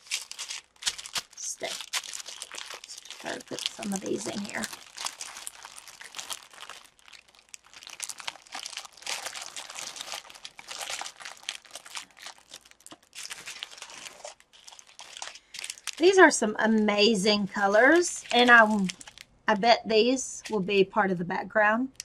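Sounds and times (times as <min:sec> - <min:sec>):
plastic bags crinkling: 0:00.0 - 0:16.3, 0:17.6 - 0:19.3.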